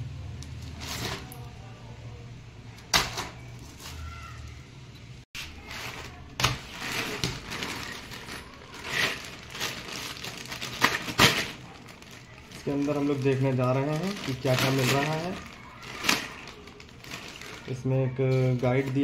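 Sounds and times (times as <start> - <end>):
plastic wrap crinkling: 5.4 - 19.0.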